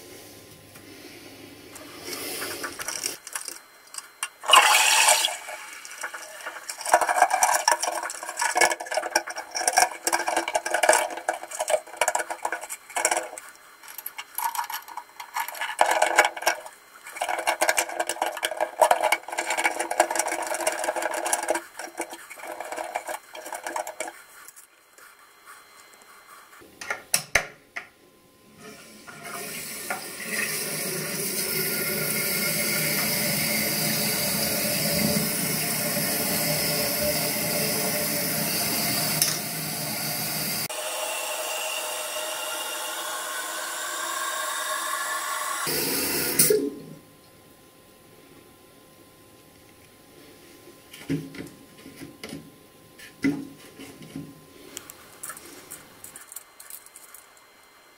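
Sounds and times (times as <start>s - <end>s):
steady water hiss: 0.0s - 3.2s
plastic parts clicking and rattling: 2.6s - 4.4s, 6.0s - 24.7s, 55.2s - 57.5s.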